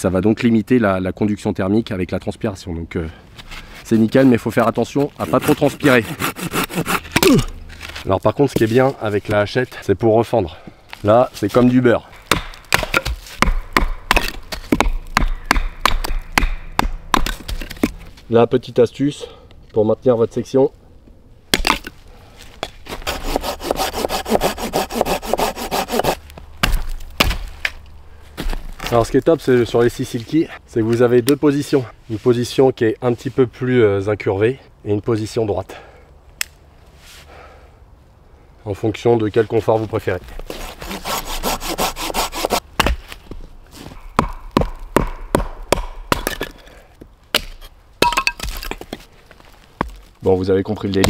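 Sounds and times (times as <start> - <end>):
hand saw cutting wood: 5.0 - 7.6, 22.9 - 26.2, 40.5 - 42.6
hatchet chopping wood: 5.2 - 7.6, 12.2 - 18.0, 21.5 - 21.9, 22.6 - 27.8, 40.8 - 43.4, 44.0 - 46.7, 47.3 - 49.0.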